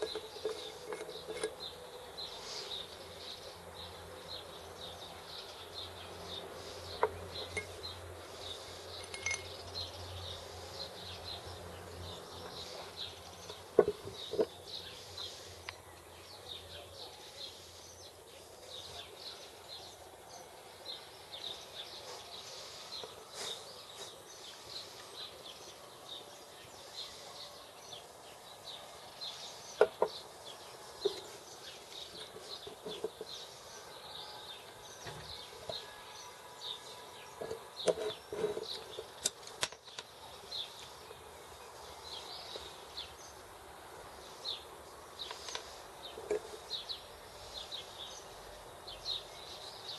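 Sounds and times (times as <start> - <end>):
metal parts clinking on wood: 0.0 - 1.7, 9.0 - 9.6
birds chirping: 0.0 - 49.9.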